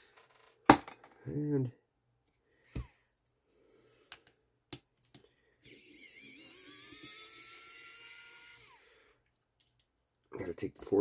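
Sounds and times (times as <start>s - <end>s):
electric screwdriver whirring: 5.6s - 8.9s.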